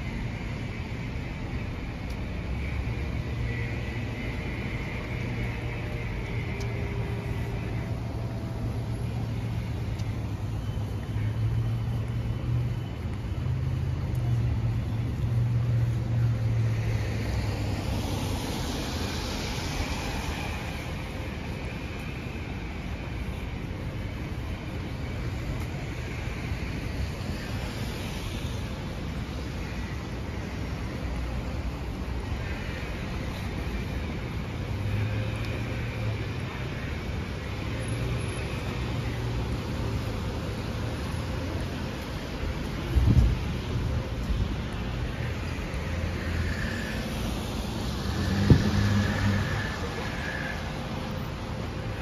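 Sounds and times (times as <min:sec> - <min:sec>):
car passing on wet road: 0:15.3 - 0:21.3, 0:38.2 - 0:52.0.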